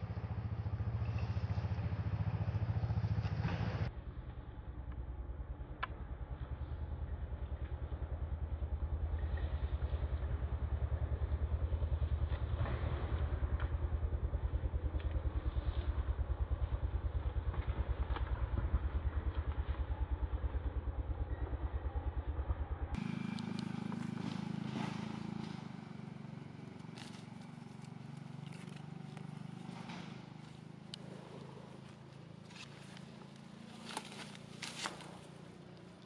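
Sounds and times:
engine idling: 0.0s - 36.0s
crackling in dry leaves: 23.0s - 36.0s.

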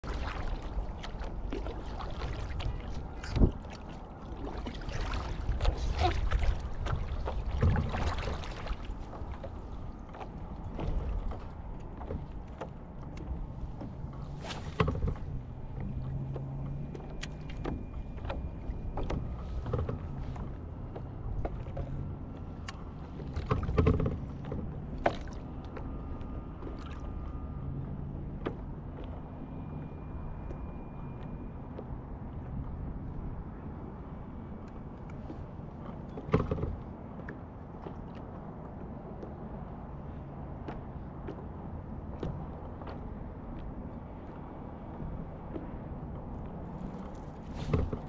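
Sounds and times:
paddle splashing in water: 0.0s - 12.7s, 46.7s - 48.0s.

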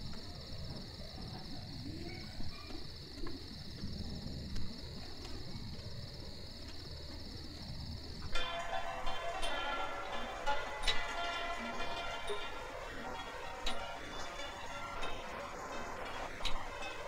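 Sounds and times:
crickets chirring: 0.0s - 17.0s
music: 8.3s - 17.0s.

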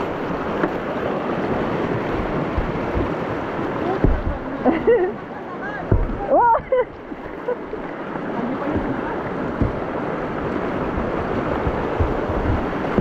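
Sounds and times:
river rapids rushing: 0.0s - 13.0s
low thumps: 1.8s - 5.1s, 5.8s - 6.8s, 8.6s - 13.0s.

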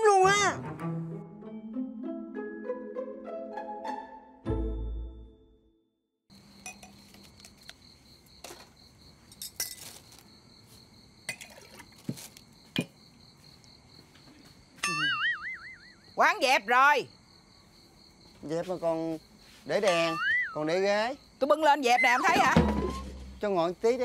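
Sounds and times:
crickets chirping: 6.3s - 24.0s
glasses and dishes clinking: 6.6s - 7.0s, 11.3s - 11.7s.

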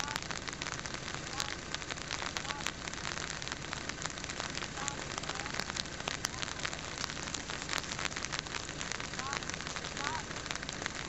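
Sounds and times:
rain pattering on recorder: 0.0s - 11.0s.

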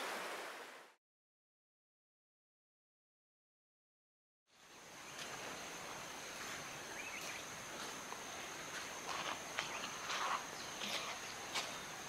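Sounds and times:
insects trilling: 4.6s - 12.0s.

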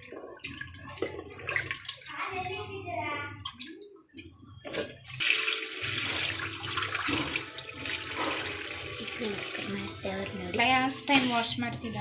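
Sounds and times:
water pouring and splashing: 0.0s - 4.0s, 4.6s - 10.1s.

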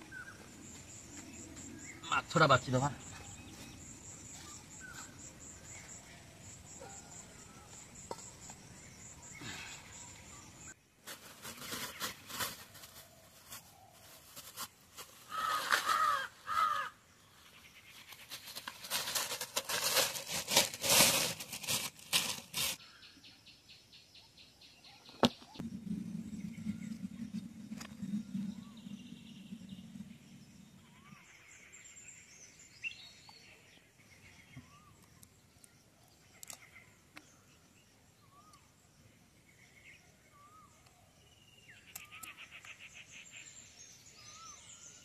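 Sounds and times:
plastic bag crinkling: 18.3s - 22.8s.

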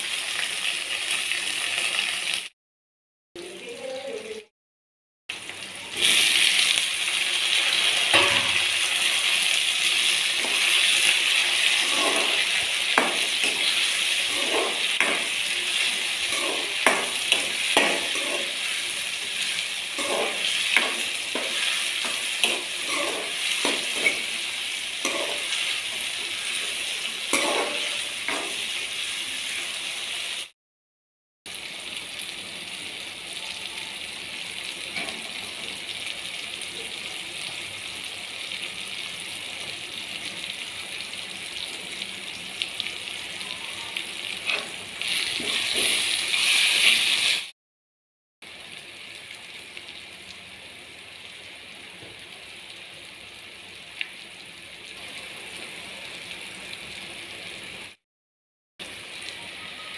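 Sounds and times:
onions frying in oil: 0.0s - 2.5s, 5.3s - 30.5s, 31.5s - 47.5s, 48.4s - 58.0s, 58.8s - 59.9s
spoon scraping a pan: 10.4s - 28.7s, 44.4s - 47.5s.

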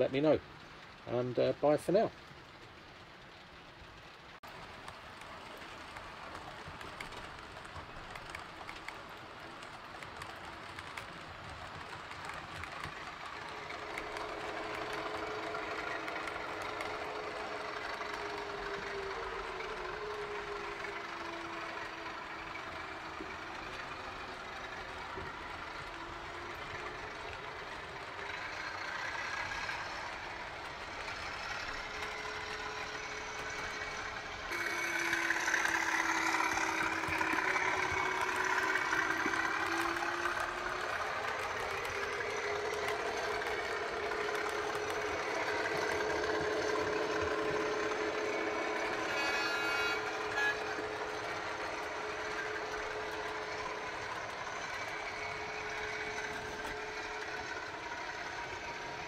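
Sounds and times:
model locomotive engine sound: 0.0s - 59.0s
model train running on track: 0.0s - 59.0s.

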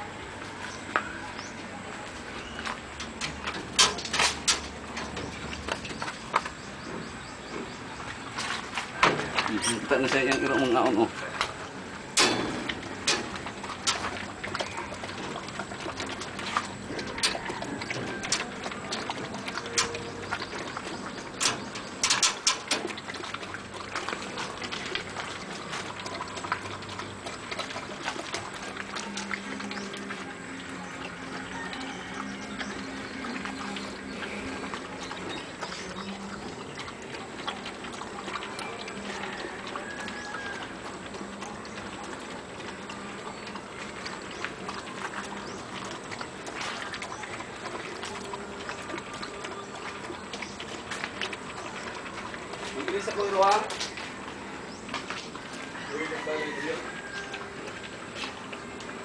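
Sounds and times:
dogs crunching kibble: 0.3s - 59.0s.

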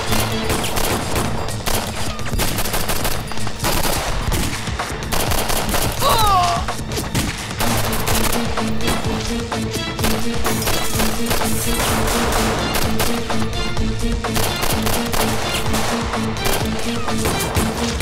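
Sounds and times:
automatic gunfire bursts: 0.0s - 6.0s
dramatic music score: 0.0s - 18.0s.

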